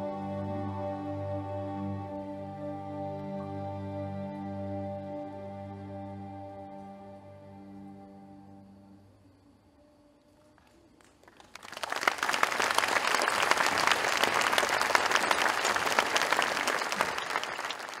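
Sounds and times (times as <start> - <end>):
audience applause: 11.0 - 18.0.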